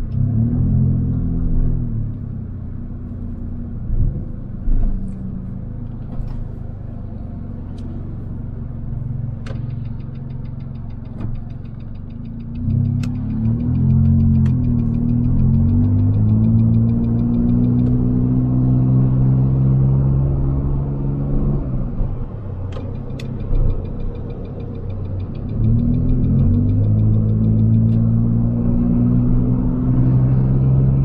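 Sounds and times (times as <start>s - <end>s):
car engine from inside cabin: 0.0s - 31.0s
sharp clicks: 9.4s - 18.2s, 22.6s - 28.2s
fast light ticking: 9.6s - 18.0s, 22.8s - 28.2s.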